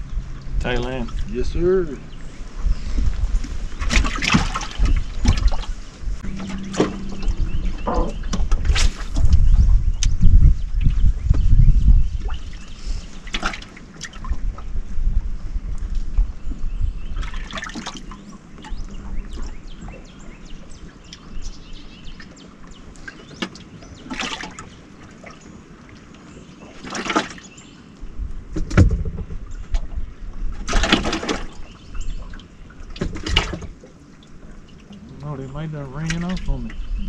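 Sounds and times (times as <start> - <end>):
low rumble: 0.0 - 13.1
water slapping against boat hull: 3.0 - 10.2, 10.8 - 14.7, 17.2 - 20.0, 22.1 - 27.6, 30.6 - 35.4, 36.0 - 36.9.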